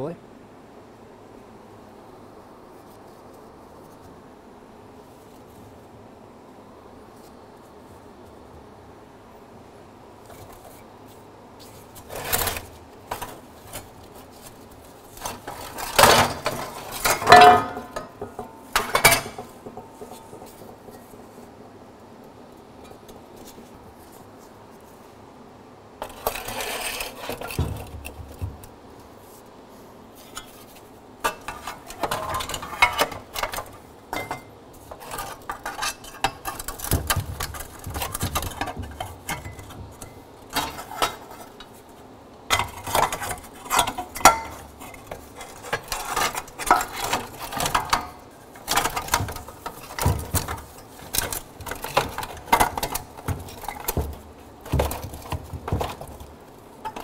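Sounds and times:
metal parts clinking and rattling: 0:15.2 - 0:21.0, 0:31.2 - 0:41.7, 0:42.5 - 0:57.0.

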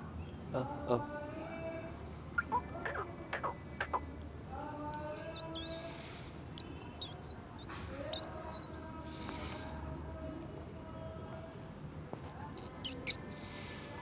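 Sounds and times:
sparrows twittering: 0:02.4 - 0:04.0, 0:05.0 - 0:08.8, 0:12.6 - 0:13.2.

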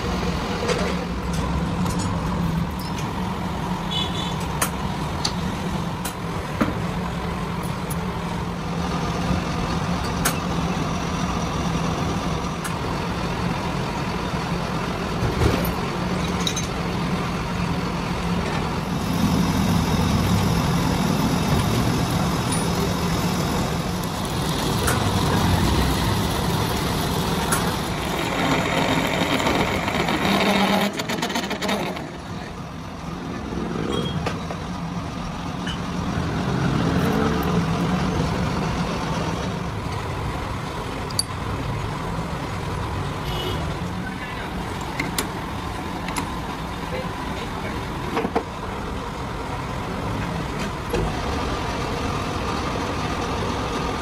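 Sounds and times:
metal lathe running: 0:17.9 - 0:32.6
cutting tool on iron bar: 0:18.9 - 0:32.2.

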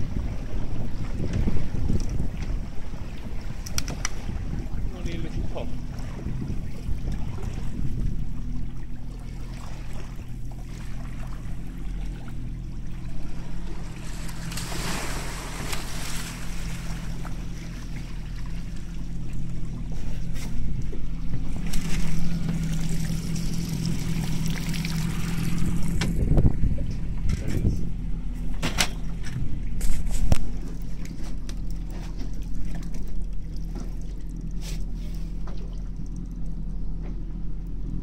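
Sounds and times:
water wash: 0:00.0 - 0:27.2
boat engine idling: 0:00.0 - 0:38.0.

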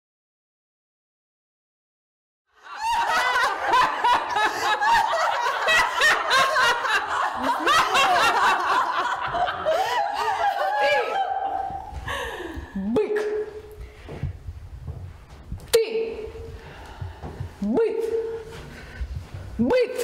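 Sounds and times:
women laughing loudly: 0:02.6 - 0:12.5.

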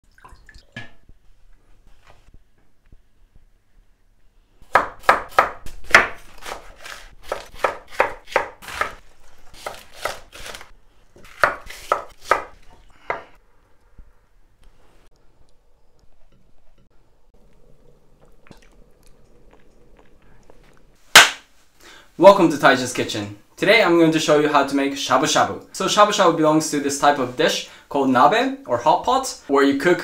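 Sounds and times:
knife chopping on wooden board: 0:04.7 - 0:09.0, 0:11.2 - 0:12.5.

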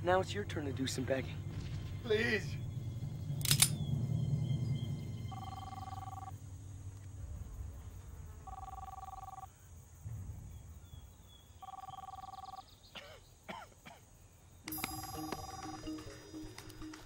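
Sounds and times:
phone ringing: 0:05.3 - 0:06.3, 0:08.5 - 0:09.5, 0:11.6 - 0:12.6, 0:14.7 - 0:17.0.

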